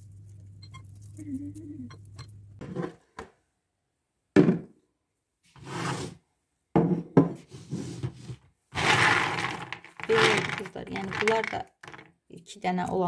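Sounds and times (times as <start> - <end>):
nuts and plate rustling and clattering: 8.8 - 12.1.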